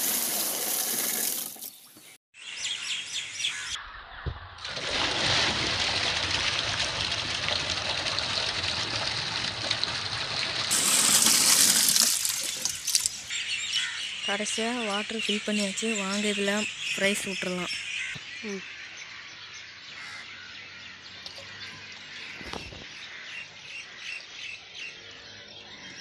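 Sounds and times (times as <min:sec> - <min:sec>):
water pouring and splashing: 0:00.0 - 0:01.8, 0:04.6 - 0:13.4.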